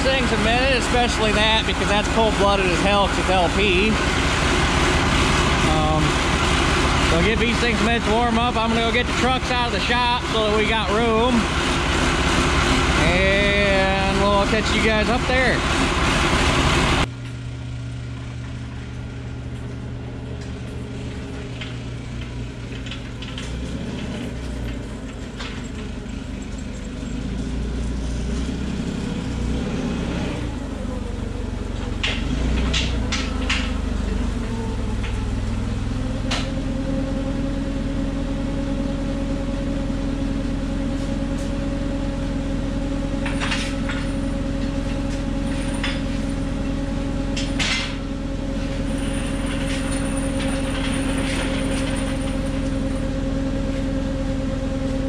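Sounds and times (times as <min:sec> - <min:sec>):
forklift engine idling: 0:00.0 - 0:55.0
metal clanks and rattles: 0:20.4 - 0:27.4, 0:43.2 - 0:54.0.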